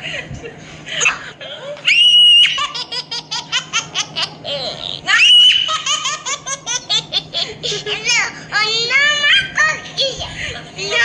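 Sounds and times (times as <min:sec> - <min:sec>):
high-pitched laughter: 0:01.0 - 0:08.1.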